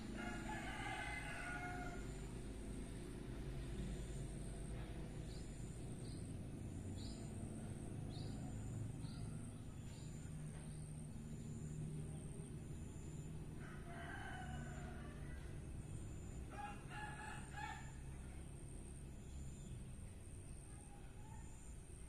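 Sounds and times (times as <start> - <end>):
rooster crowing: 0.0 - 2.4, 13.5 - 18.5
small bird chirping: 3.6 - 13.4.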